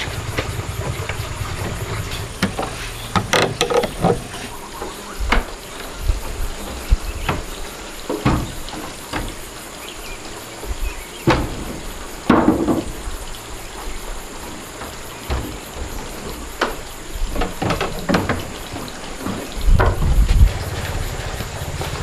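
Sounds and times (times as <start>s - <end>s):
hollow wooden knocks: 0.1s - 5.6s, 7.2s - 9.4s, 10.7s - 13.0s, 14.7s - 22.0s.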